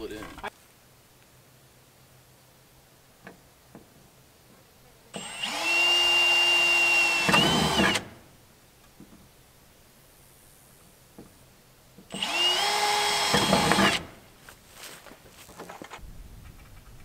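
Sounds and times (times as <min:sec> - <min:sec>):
power drill driving fastener: 0:05.2 - 0:08.2, 0:12.1 - 0:14.1.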